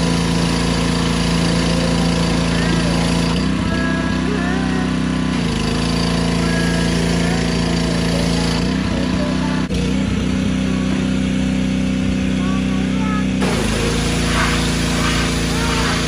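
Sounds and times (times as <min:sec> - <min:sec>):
small engine running: 0:00.0 - 0:16.0
high-pressure water spray hiss: 0:13.4 - 0:16.0.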